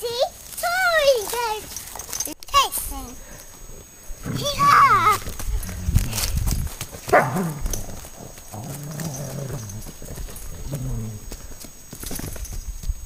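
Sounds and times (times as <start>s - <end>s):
running footsteps on gravel: 4.9s - 13.0s.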